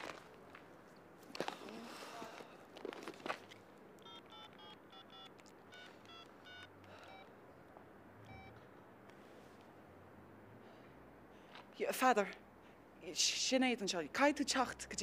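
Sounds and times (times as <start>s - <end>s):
mobile phone keypad beeps: 4.0s - 7.3s, 8.3s - 8.6s.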